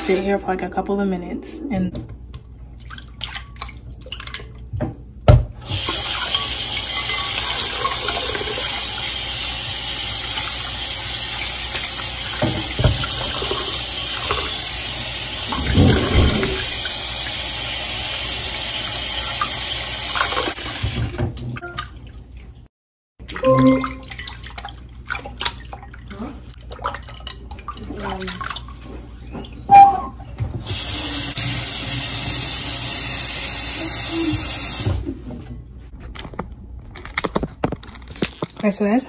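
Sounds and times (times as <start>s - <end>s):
tap water running into bowl: 2.0s - 22.3s.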